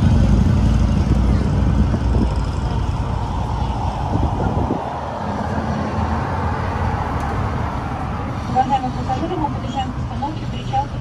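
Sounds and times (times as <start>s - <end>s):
motor vehicles running along road: 0.0s - 11.0s.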